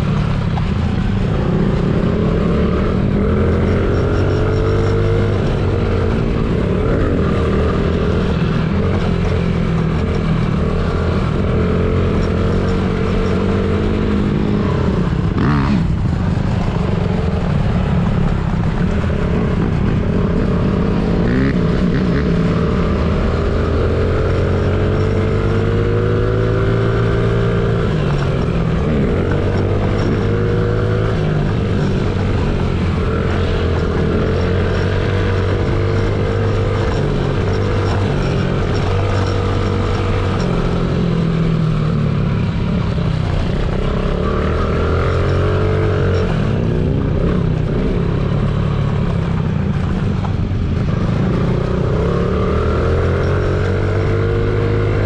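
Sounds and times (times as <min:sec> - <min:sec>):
small motorcycle engine revving: 0:17.6 - 0:55.0.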